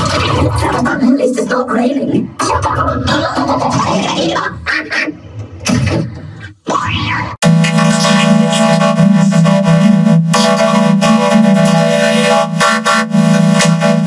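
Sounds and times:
buzzing synthesizer chord: 7.4 - 14.0.

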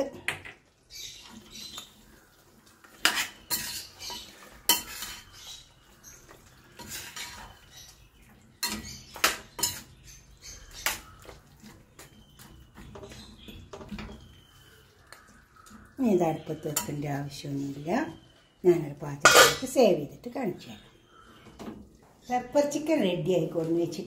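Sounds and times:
ladle scraping and clinking in pan: 2.9 - 5.6, 6.7 - 7.7, 8.5 - 9.9, 19.2 - 19.7.

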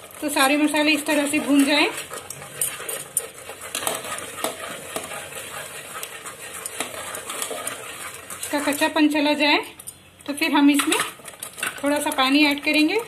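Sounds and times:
spoon stirring and scraping: 0.0 - 13.0.

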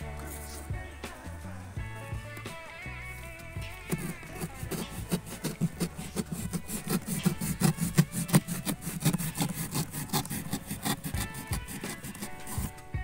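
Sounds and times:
scraping on cardboard box: 3.2 - 13.0.

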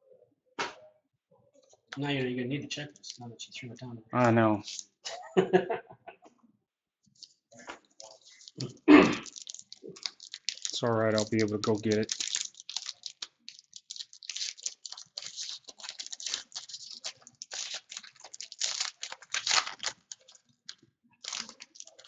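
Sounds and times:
card wrapper crinkling and clicking: 4.2 - 5.0, 7.2 - 22.0.

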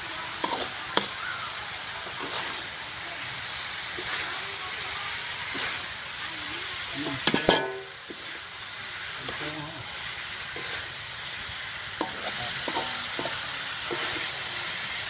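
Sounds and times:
food sizzling in a wok: 0.0 - 15.0
spatula scraping a wok: 0.1 - 15.0
spatula clanking on a wok: 0.4 - 1.2, 7.0 - 8.4, 11.9 - 14.4.

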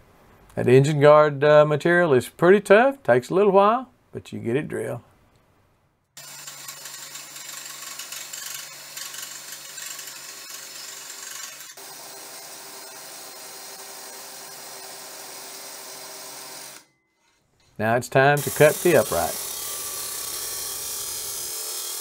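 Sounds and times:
drill grinding through metal: 6.2 - 16.9, 18.4 - 22.0.

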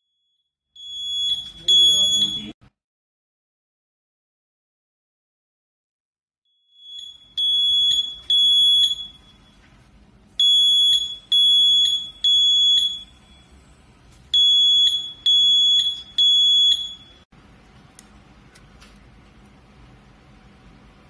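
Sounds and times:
smoke alarm beeping: 0.0 - 2.6, 6.5 - 9.8, 10.4 - 17.3.

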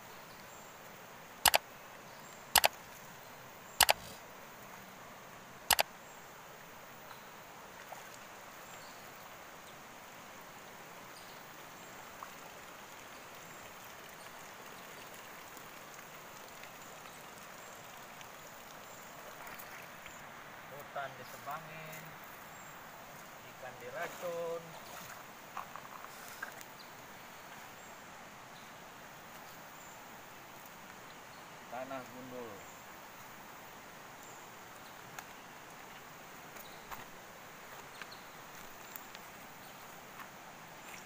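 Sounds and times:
river flowing over stones: 0.0 - 41.0
sharp double clicks: 1.4 - 1.6, 2.5 - 2.8, 3.8 - 4.1.

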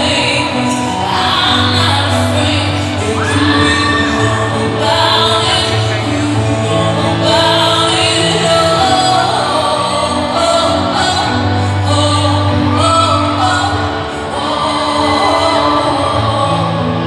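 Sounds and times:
voices singing long notes: 0.0 - 17.0.

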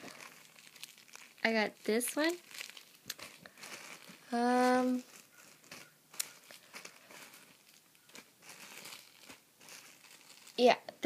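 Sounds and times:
plastic bags crinkling: 0.0 - 10.8
small clicks and scrapes: 5.0 - 10.5.

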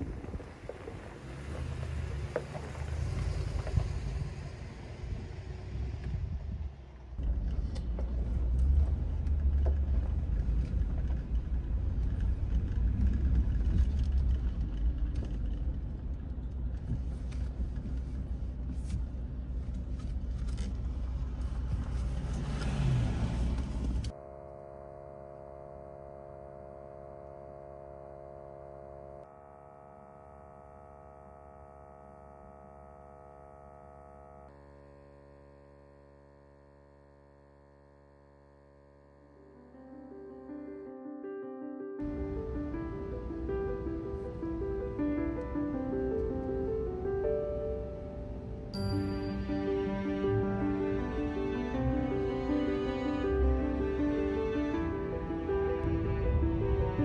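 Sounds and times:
truck road rumble: 0.0 - 34.5, 42.0 - 57.0
soft music of sustained chords: 24.1 - 57.0.

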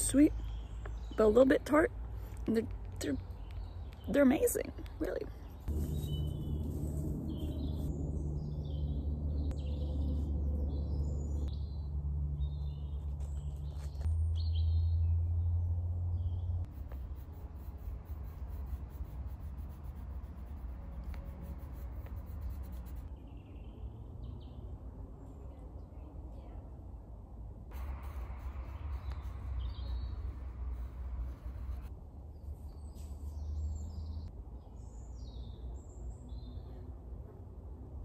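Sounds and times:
songbirds chirping and singing: 5.3 - 15.2
steady low rumble: 5.5 - 23.2, 27.7 - 32.6.

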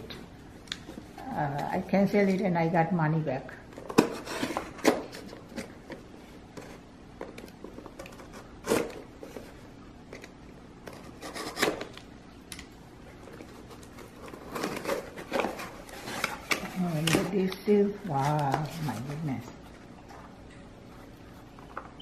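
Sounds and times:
cardboard handling: 13.2 - 19.3.

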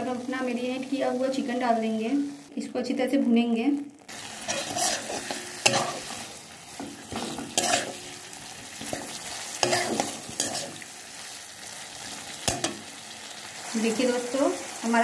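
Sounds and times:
chicken sizzling in pan: 0.0 - 2.9, 4.0 - 15.0
metal spatula scraping pan: 4.2 - 10.9.

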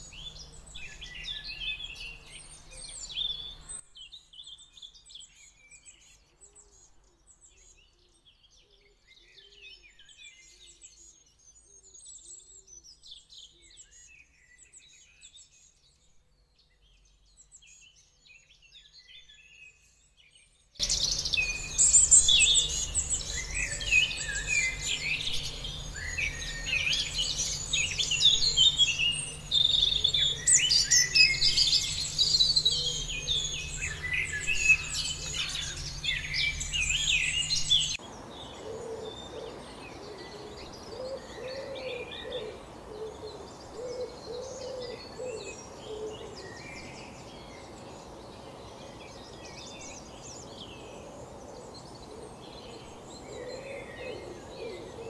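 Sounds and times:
small birds chirping and trilling: 0.0 - 55.0
bird cooing or hooting: 32.6 - 33.4, 38.6 - 46.4, 52.1 - 55.0.

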